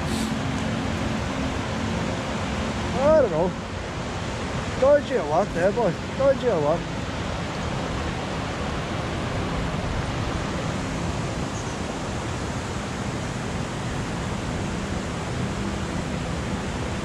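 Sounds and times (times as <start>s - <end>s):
river rushing over rapids: 0.0s - 17.0s.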